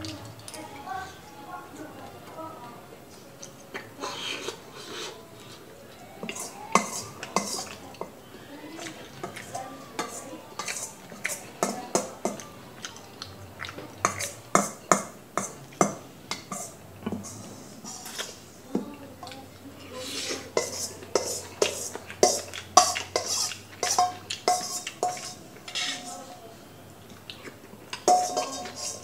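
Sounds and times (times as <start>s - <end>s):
metal spoon clinking in metal bowl: 6.2s - 7.8s, 9.3s - 12.4s, 20.6s - 26.3s, 27.9s - 29.0s.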